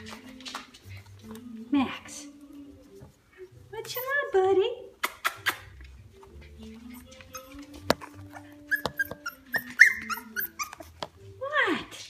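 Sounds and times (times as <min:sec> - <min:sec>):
puppies whimpering and squeaking: 0:03.8 - 0:04.2, 0:05.2 - 0:11.3.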